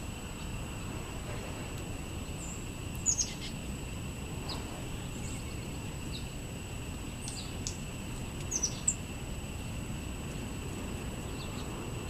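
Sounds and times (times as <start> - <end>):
songbirds chip calls: 2.2 - 3.6, 4.4 - 6.4, 7.0 - 9.1, 11.1 - 11.9.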